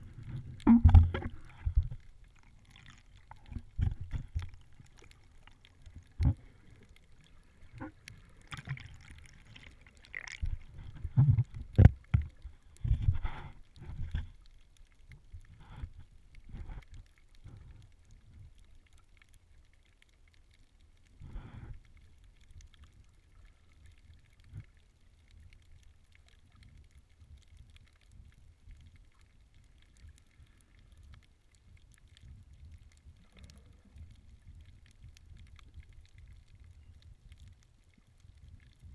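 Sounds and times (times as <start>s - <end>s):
muffled underwater swishes and gurgles: 0.0s - 19.3s
faint low rumble: 0.0s - 38.9s.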